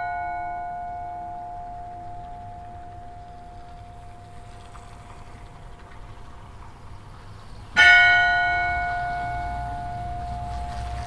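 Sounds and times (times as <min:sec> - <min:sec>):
church bell ringing: 0:00.0 - 0:05.0, 0:07.8 - 0:11.0.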